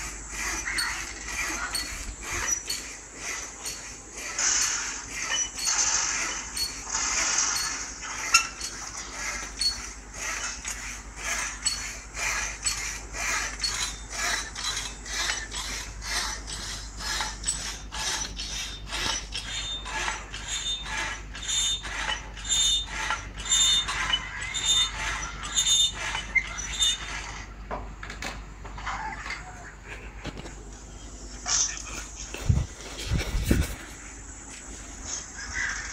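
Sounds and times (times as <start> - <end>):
hacksaw cutting metal: 0.0 - 27.5
high squeal of saw blade: 0.3 - 27.4.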